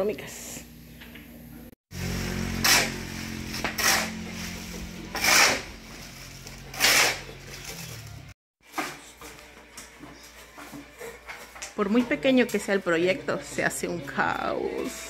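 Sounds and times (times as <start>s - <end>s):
shovel scraping wet concrete: 2.0s - 7.8s.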